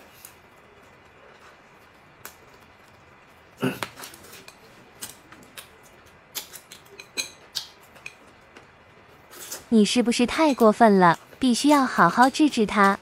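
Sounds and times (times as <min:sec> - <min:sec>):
chopsticks clicking on plates: 0:03.9 - 0:08.7.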